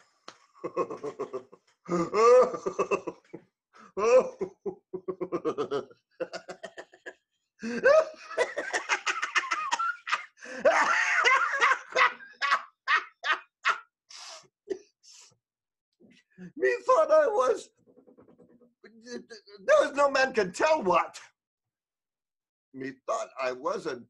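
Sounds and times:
man laughing heartily: 0.6 - 13.9.

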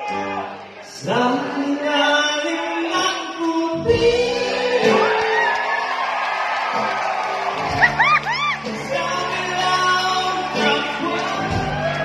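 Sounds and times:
person singing amplified: 0.0 - 5.6, 8.6 - 12.0
band playing: 0.0 - 5.8, 6.7 - 12.0.

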